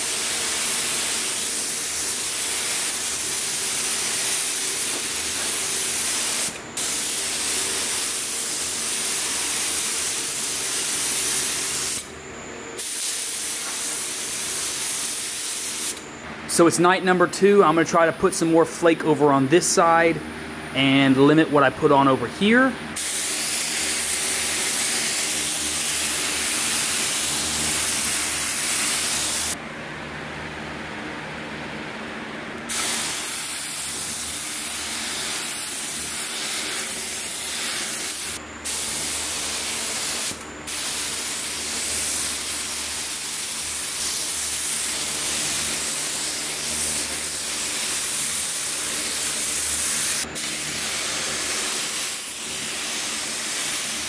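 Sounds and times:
paint spray gun hissing: 0.0s - 12.1s, 12.8s - 16.1s, 23.0s - 29.6s, 32.7s - 54.0s
steady low hum: 15.6s - 53.7s.

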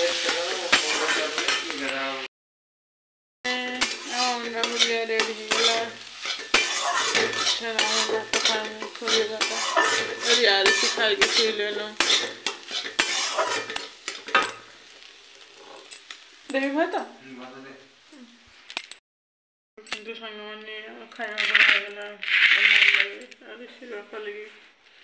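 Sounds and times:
metal spatula scraping a pan: 0.0s - 1.8s, 3.6s - 16.7s, 21.2s - 23.8s
food sizzling: 0.0s - 2.3s, 3.5s - 19.0s, 20.9s - 25.0s.

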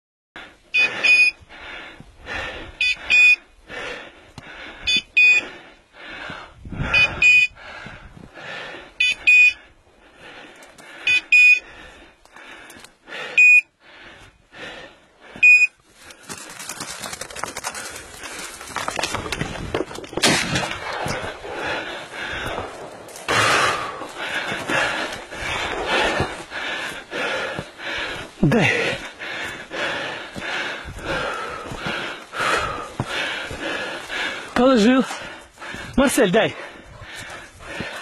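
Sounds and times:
electronic collar beeps: 0.8s - 1.4s, 2.8s - 3.4s, 4.9s - 5.5s, 6.9s - 7.6s, 9.0s - 9.6s, 11.1s - 11.6s, 13.4s - 13.7s, 15.4s - 15.8s.

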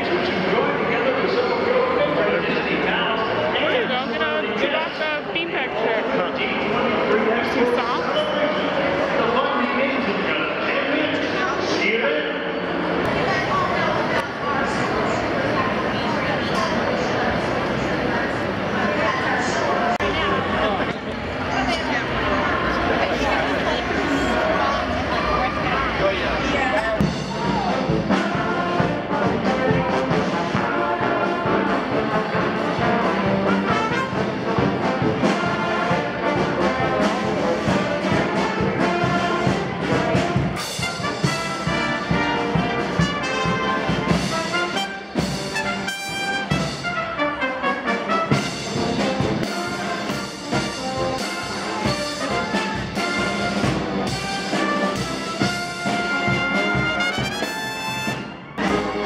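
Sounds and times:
trumpets and sousaphone: 27.0s - 59.0s.

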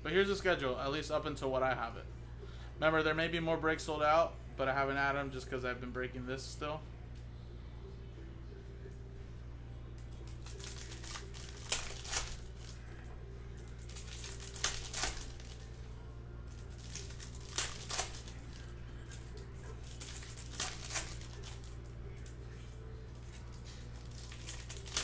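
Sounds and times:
steady low hum: 0.0s - 25.0s
foil wrapper crinkling and tearing: 10.2s - 12.8s, 13.7s - 15.7s, 16.5s - 21.8s, 23.2s - 25.0s.

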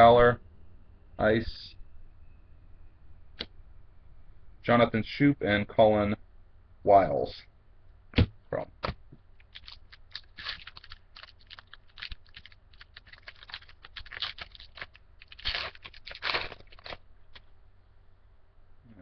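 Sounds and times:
foil wrapper crinkling: 9.4s - 17.4s.

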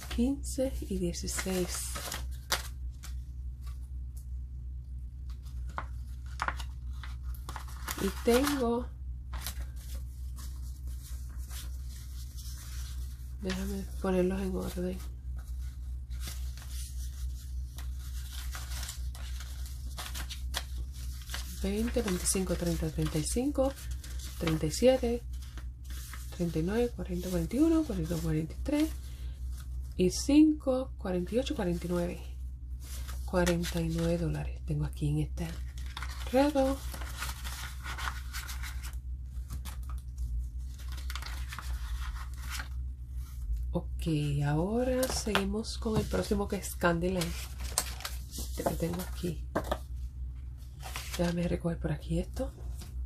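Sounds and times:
steady low hum: 0.0s - 53.0s
banknotes rustling and flicking: 5.2s - 30.0s, 35.4s - 43.6s, 44.6s - 51.4s.

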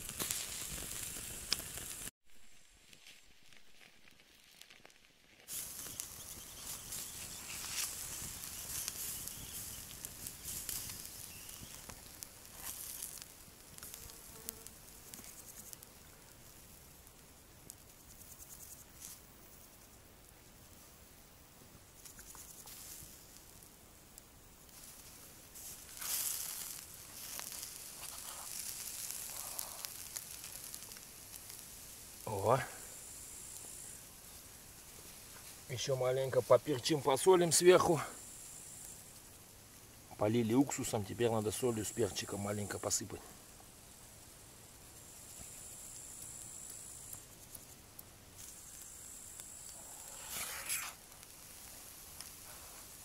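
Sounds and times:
crackling pops: 0.0s - 2.1s, 2.8s - 20.0s, 21.9s - 44.2s, 44.8s - 53.0s
drips hissing on coals: 0.0s - 2.1s, 3.0s - 53.0s
meat sizzling over embers: 0.0s - 53.0s.

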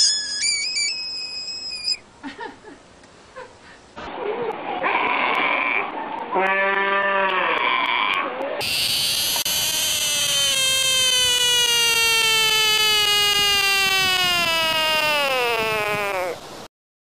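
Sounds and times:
sea lion pup calling: 0.0s - 2.0s, 6.5s - 16.4s.

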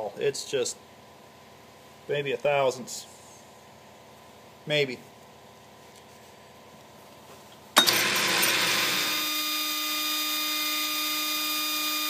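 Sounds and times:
lathe and grinder whining: 7.8s - 12.0s.

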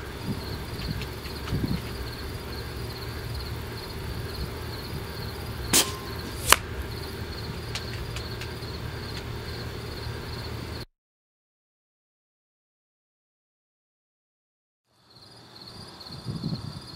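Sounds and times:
crickets chirping: 0.0s - 10.9s, 14.9s - 16.9s
sharp crack: 5.7s - 9.3s
air rifle shot pop: 5.8s - 6.7s.

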